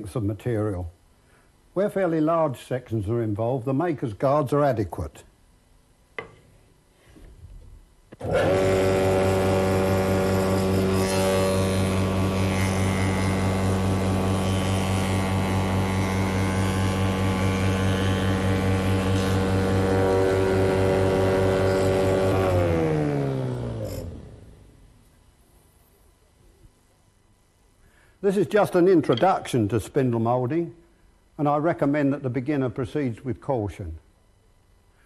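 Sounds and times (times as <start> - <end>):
spindle moulder humming: 8.2 - 24.7.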